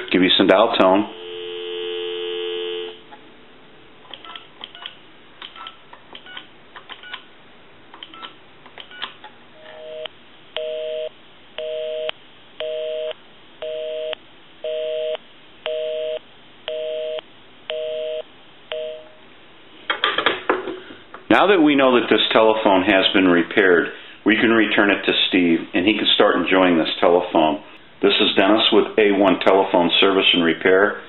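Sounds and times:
telephone busy signal: 0:01.1 - 0:03.0, 0:09.7 - 0:19.2.

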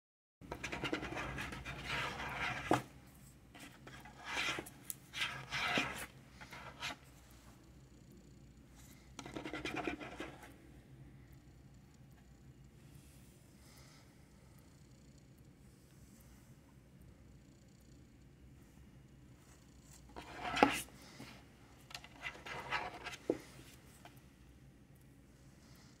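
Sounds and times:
fingers scratching a tray: 0:00.5 - 0:02.9, 0:03.6 - 0:07.0, 0:09.2 - 0:10.5, 0:22.0 - 0:23.4.

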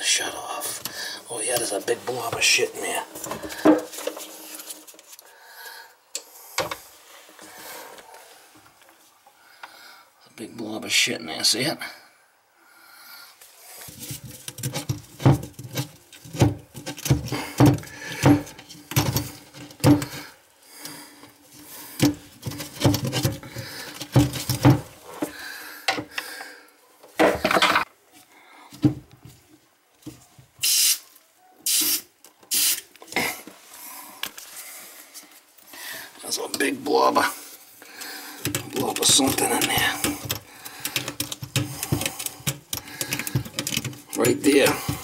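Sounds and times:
short hissing bursts: 0:30.6 - 0:32.9
tools knocking and clinking: 0:38.4 - 0:45.0.

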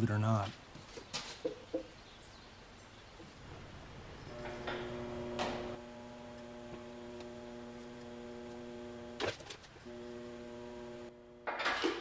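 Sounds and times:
electric motor humming: 0:04.3 - 0:11.6.

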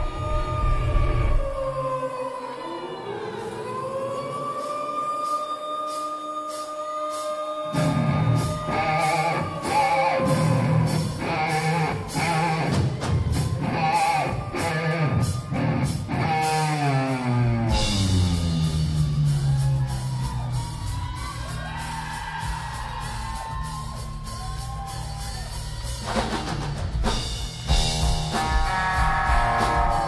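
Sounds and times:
person singing: 0:00.0 - 0:20.1
live rock band playing: 0:07.1 - 0:30.0.

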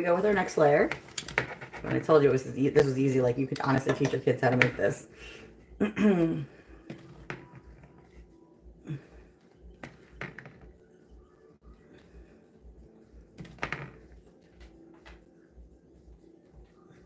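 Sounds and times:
spoon knocking pot and colander: 0:03.6 - 0:04.9.

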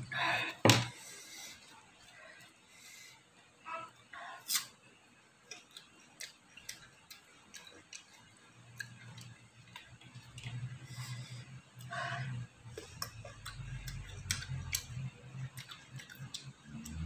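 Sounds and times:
light clicks and taps of eating: 0:05.4 - 0:10.8, 0:12.7 - 0:17.0.

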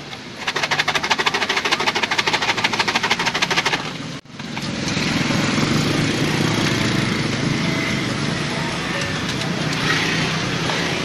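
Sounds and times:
motorcycle engine running: 0:00.3 - 0:11.0
plastic container rattling: 0:00.4 - 0:04.0.

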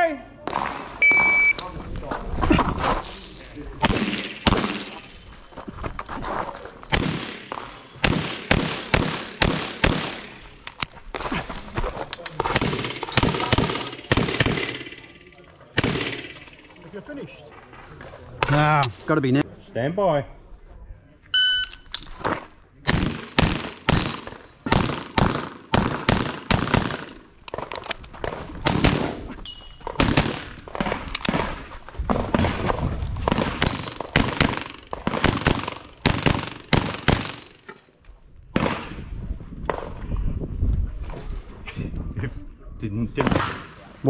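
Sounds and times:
rapid pistol fire: 0:08.0 - 0:10.2, 0:12.5 - 0:15.0, 0:22.9 - 0:27.1, 0:33.3 - 0:37.5.

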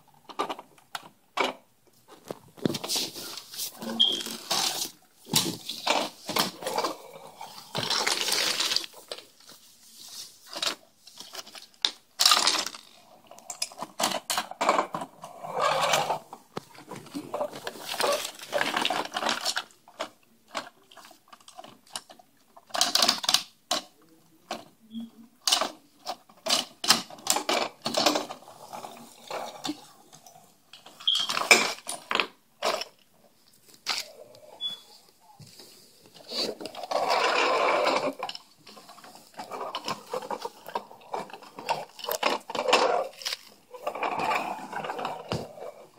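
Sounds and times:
toy blocks clattering on wooden floor: 0:03.8 - 0:09.3, 0:10.5 - 0:15.1, 0:25.5 - 0:29.8, 0:36.3 - 0:45.9.

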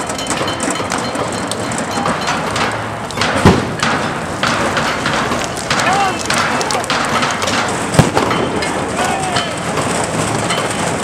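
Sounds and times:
dense crackling noise: 0:00.0 - 0:11.0
heavy thud: 0:03.2 - 0:08.4.

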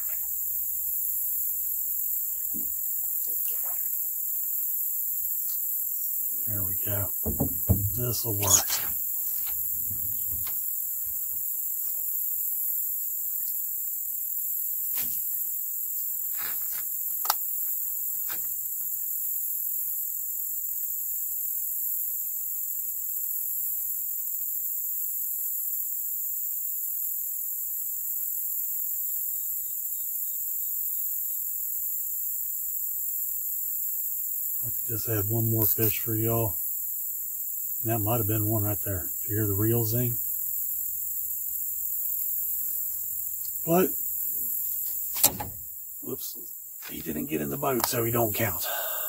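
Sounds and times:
high-pitched insect chorus: 0:00.0 - 0:49.0.

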